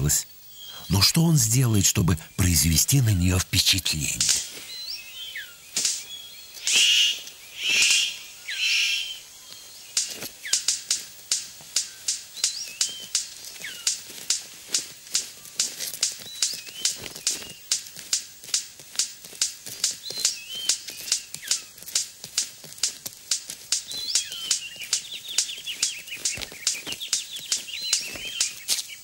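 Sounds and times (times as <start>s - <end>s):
bird harsh calls: 0.0s - 11.0s, 19.8s - 22.0s, 23.6s - 29.0s
bird sharp clicks: 5.7s - 8.2s, 9.9s - 29.0s.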